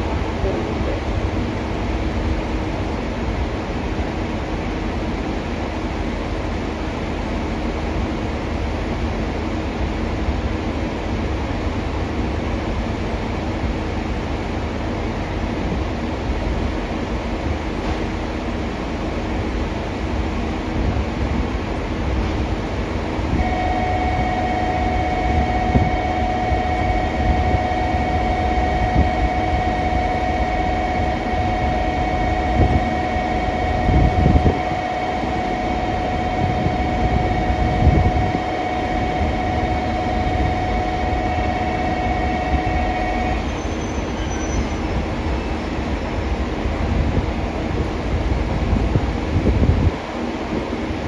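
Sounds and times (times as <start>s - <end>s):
train rumbling: 0.0s - 51.0s
platform warning bell ringing: 23.4s - 44.8s.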